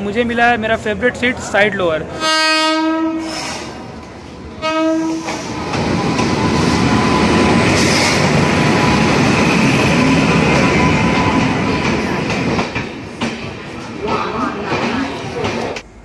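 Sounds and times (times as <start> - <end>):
train rolling past: 0.0 - 16.0
locomotive horn blasts: 2.2 - 3.3, 4.6 - 5.4.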